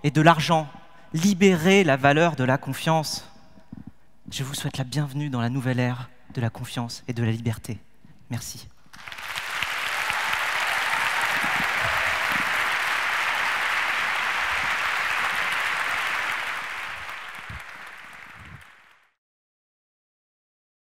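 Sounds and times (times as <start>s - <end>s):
audience applauding: 8.9s - 19.1s.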